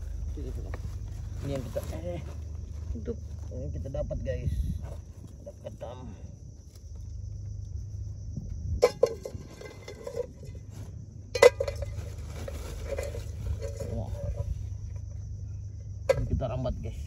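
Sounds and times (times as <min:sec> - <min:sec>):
insects droning: 0:00.0 - 0:17.0.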